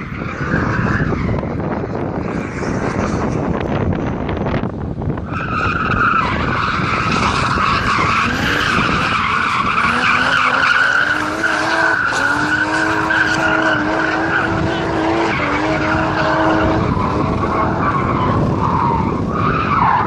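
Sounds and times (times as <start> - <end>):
car engine high revs: 5.2 - 20.0.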